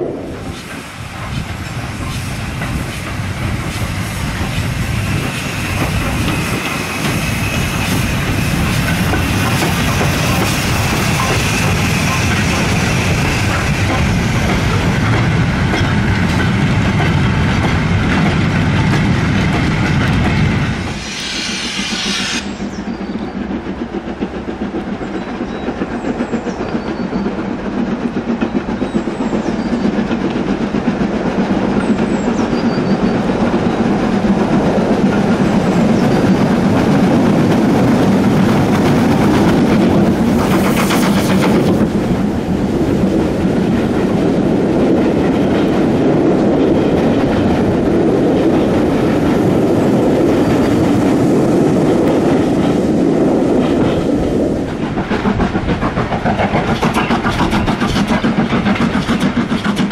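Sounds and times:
steam locomotive exhaust: 0:00.0 - 0:17.0, 0:18.1 - 0:30.5
loud rush of steam: 0:00.0 - 0:24.8, 0:29.8 - 0:59.9
freight train wheels rattling: 0:00.0 - 0:59.9.

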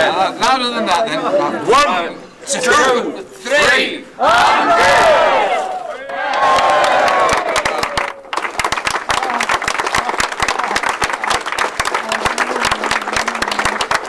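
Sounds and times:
group shouting: 0:02.6 - 0:07.9
people clapping: 0:05.9 - 0:14.0.

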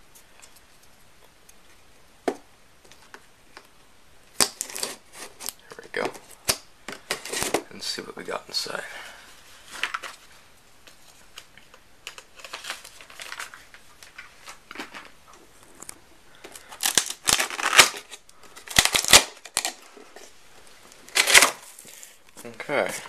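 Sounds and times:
cardboard rustling and crinkling: 0:09.4 - 0:23.0.

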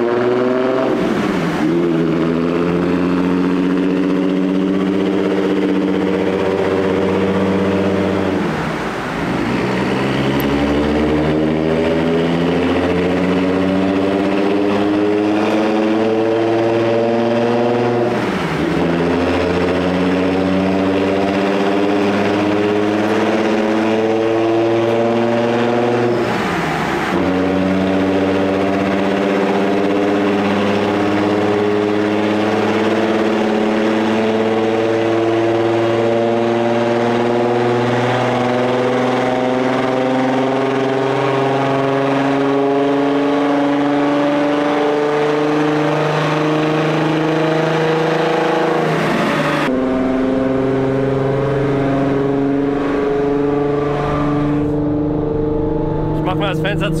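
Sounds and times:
loud exhaust note: 0:00.0 - 0:08.7, 0:49.6 - 0:57.0
car engine running: 0:49.0 - 0:57.0.

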